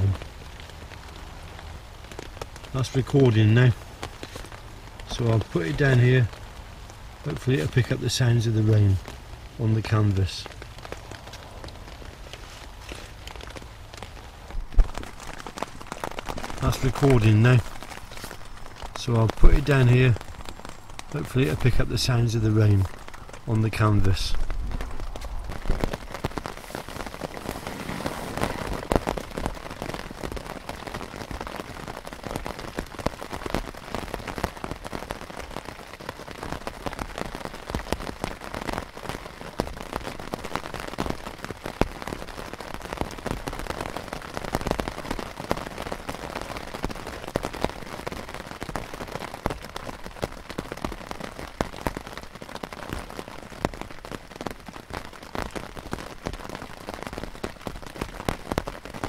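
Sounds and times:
rain pattering on tent canvas: 0:00.0 - 0:59.0.

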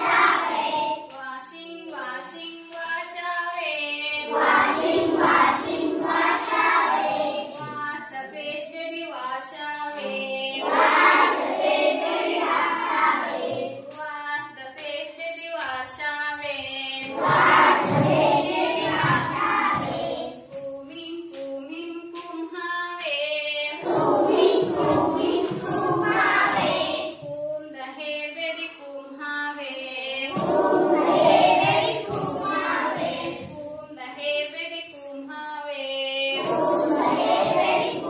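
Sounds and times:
children singing in chorus: 0:00.0 - 0:01.1, 0:04.2 - 0:08.0, 0:10.0 - 0:13.9, 0:16.9 - 0:20.5, 0:23.7 - 0:27.3, 0:30.2 - 0:33.6, 0:36.3 - 0:38.0
woman singing: 0:00.0 - 0:11.3, 0:12.5 - 0:38.0.

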